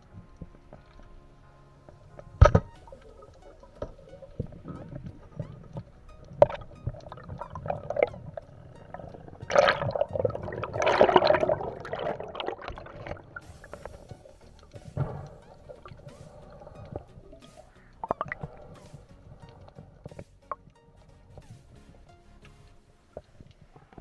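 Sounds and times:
underwater clicks: 0.0 - 24.0
underwater gurgling and sloshing: 0.0 - 24.0
bubbling noise: 2.4 - 19.0.

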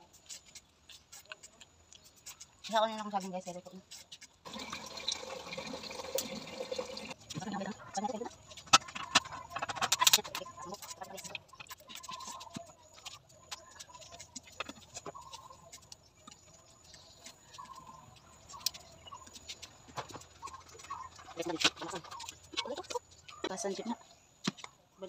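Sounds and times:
firewood clicking and knocking: 8.3 - 23.6
chickens clucking: 13.6 - 15.9, 17.1 - 23.8.

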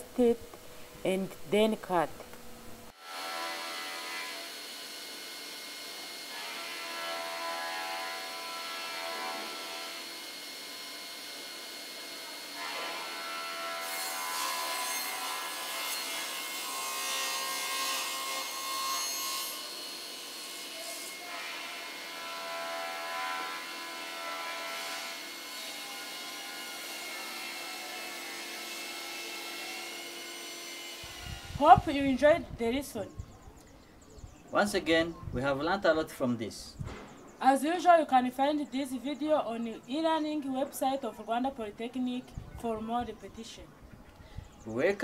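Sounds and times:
saw blade cutting wood: 2.9 - 31.6
panel saw whining: 3.0 - 31.6.

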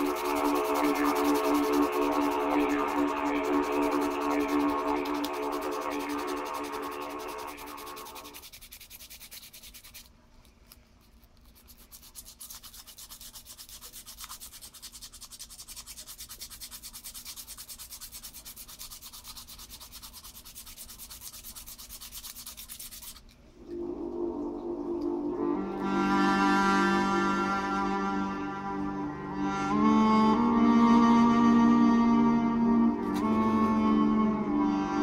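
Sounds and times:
sandpaper rubbing wood: 0.0 - 10.1, 11.5 - 23.2.

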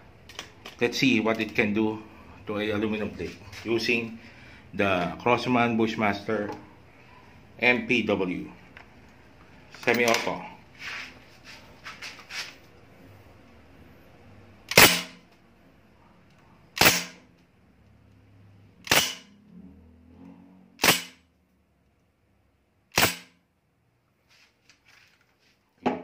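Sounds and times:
bb rifle shots: 14.7 - 15.2, 16.8 - 17.2, 18.8 - 19.3, 20.8 - 21.2, 22.9 - 23.4.

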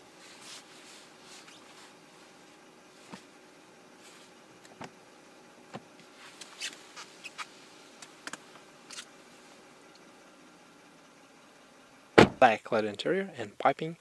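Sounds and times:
car door opening: 12.2 - 12.5.

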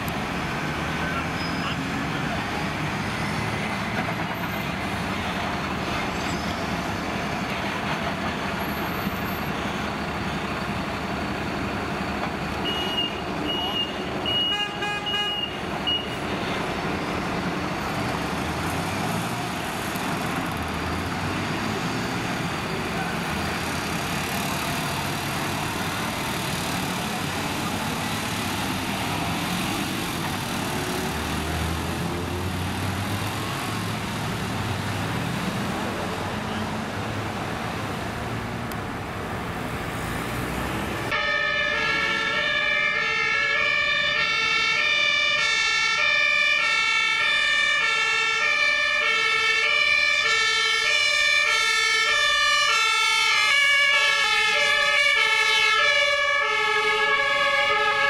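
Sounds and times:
fire engine diesel engines running: 0.0 - 58.0
vehicle horn: 12.6 - 15.5.

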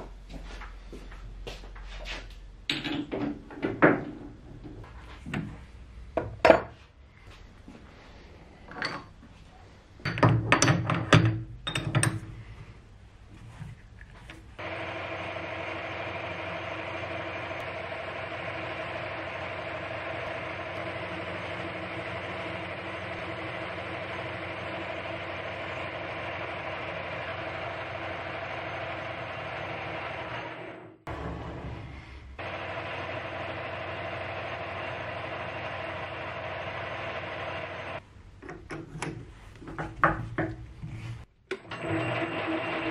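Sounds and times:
lathe motor and gears humming: 13.3 - 38.0, 39.1 - 42.9.

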